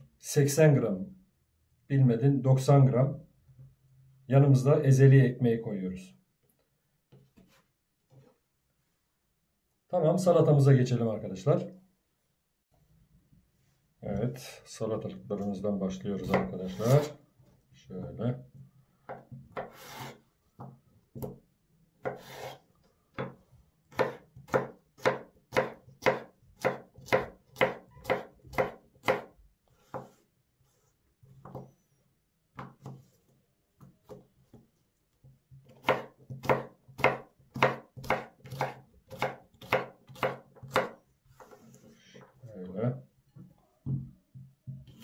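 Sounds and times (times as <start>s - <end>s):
knife chopping on cutting board: 16.2s - 17.2s, 19.0s - 21.4s, 22.0s - 30.2s, 35.6s - 42.0s.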